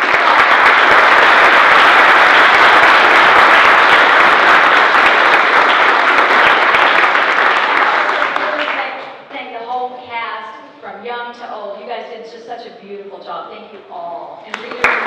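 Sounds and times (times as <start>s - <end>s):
audience applauding: 0.0s - 9.3s, 14.5s - 15.0s.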